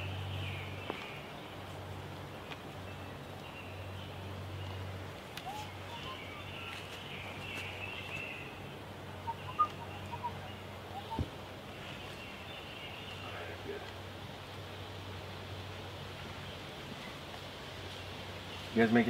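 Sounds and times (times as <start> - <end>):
birds singing and twittering: 0.0 - 14.0
short clear bird chirps: 9.3 - 10.4.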